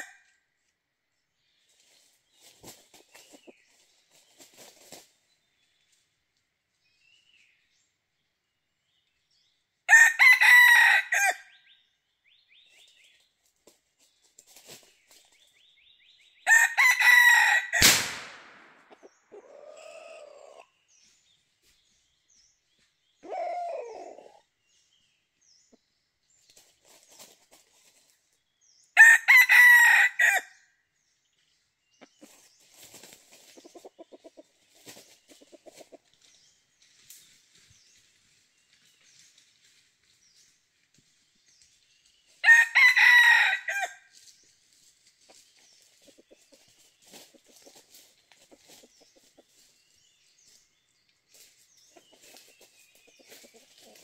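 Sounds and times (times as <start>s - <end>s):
roosters crowing: 9.9s - 11.5s, 16.5s - 17.9s, 29.0s - 30.5s, 42.4s - 44.1s.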